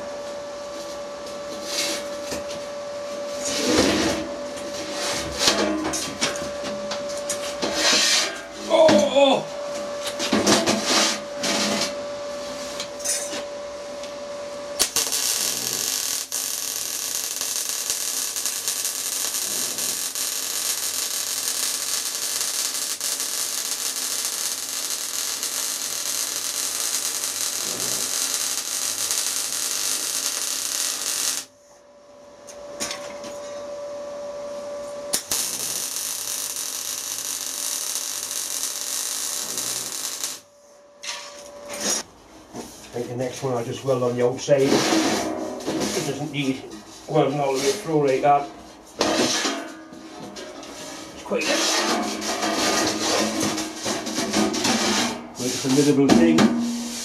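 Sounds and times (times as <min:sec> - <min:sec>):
steady hum: 0:00.0 - 0:51.4
electric arc welding crackling hiss: 0:14.8 - 0:31.5, 0:35.1 - 0:40.5, 0:52.8 - 0:56.1.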